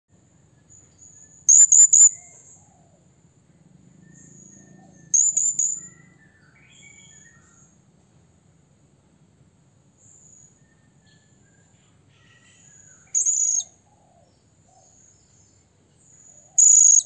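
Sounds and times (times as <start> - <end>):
thin high whistles: 1.3 - 2.2, 16.6 - 17.0
parrot shrill call: 1.5 - 2.6, 5.1 - 6.1, 12.1 - 13.7, 16.6 - 17.0.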